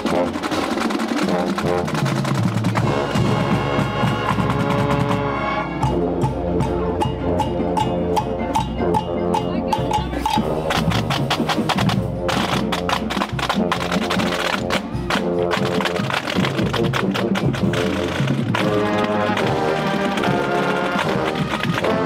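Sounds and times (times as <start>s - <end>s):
rapid drumline hits: 0.0s - 22.0s
brass sustained chords: 2.8s - 10.9s, 18.6s - 22.0s.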